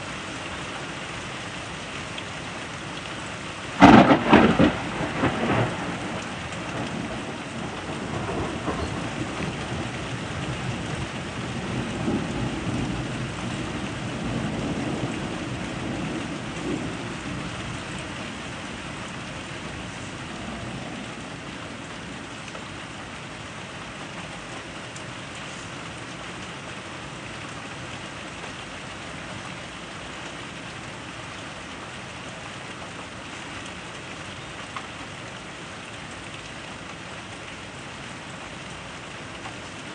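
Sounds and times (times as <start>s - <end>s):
steady rain falling: 0.0s - 39.9s
thunder rumbling: 3.8s - 22.4s.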